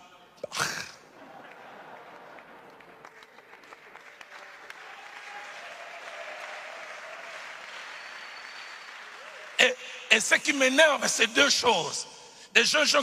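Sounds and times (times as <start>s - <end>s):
congregation applauding: 1.1s - 10.8s.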